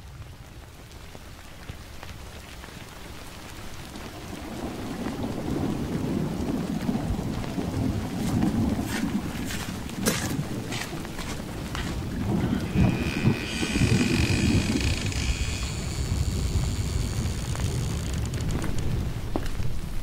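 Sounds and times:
rain hiss: 0.0 - 20.0
low thunder rumble: 4.2 - 20.0.

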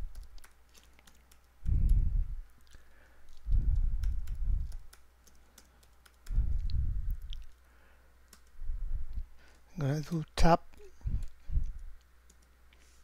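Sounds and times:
typing on a keyboard: 0.0 - 2.0, 2.6 - 6.6, 8.3 - 8.6, 11.2 - 12.6.

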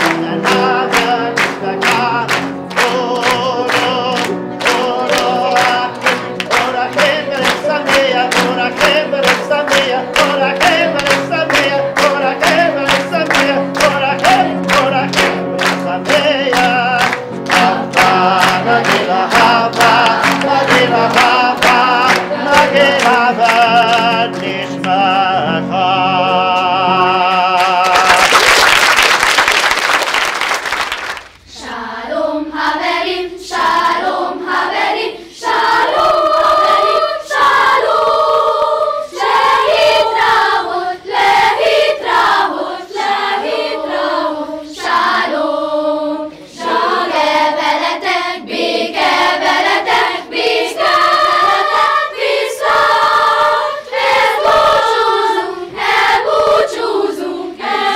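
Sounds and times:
applause: 0.0 - 19.4, 27.6 - 31.4
children's choir singing: 0.0 - 28.3, 31.5 - 57.9.

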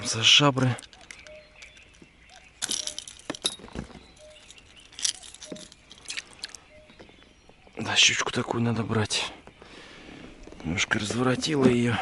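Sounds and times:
metal fishing lure clinking: 0.8 - 6.6.

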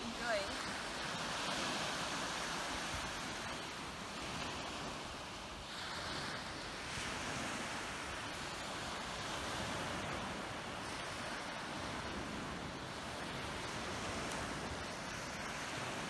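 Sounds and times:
sea waves washing onto beach: 0.0 - 16.0
wind buffeting microphone: 0.0 - 16.0.

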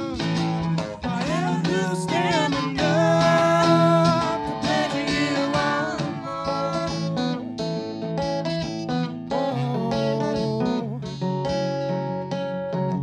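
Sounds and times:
acoustic guitar strummed: 0.0 - 13.0
sliding melody line: 1.1 - 7.8.

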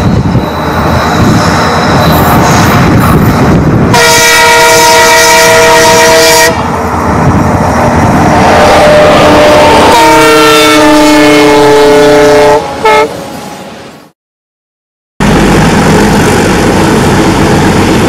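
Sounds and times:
freight train rumbling: 0.0 - 14.1, 15.2 - 18.0
locomotive air horn: 3.9 - 6.7, 8.3 - 13.2.

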